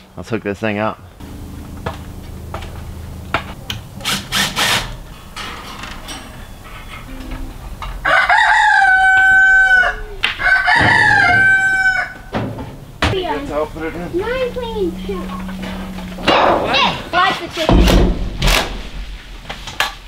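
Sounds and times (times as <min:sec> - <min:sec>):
rooster crowing: 0:06.4 - 0:12.5, 0:13.5 - 0:17.1.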